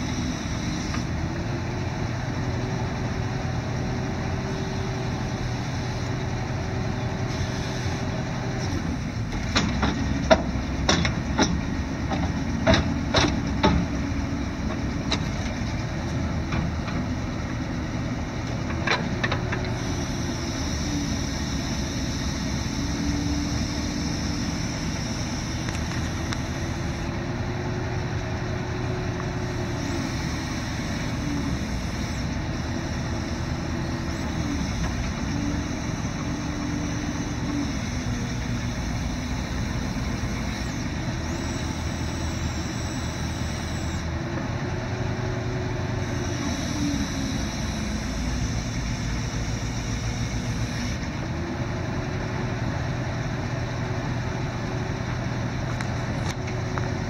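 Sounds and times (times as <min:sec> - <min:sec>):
hydraulic whine: 0:00.0 - 0:01.5, 0:19.1 - 0:51.6
truck engine idling: 0:00.0 - 0:57.0.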